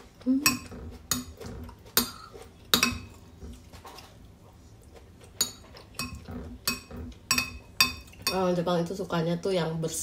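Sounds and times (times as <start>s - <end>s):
spoon clinking on ceramic plate: 5.4s - 8.5s.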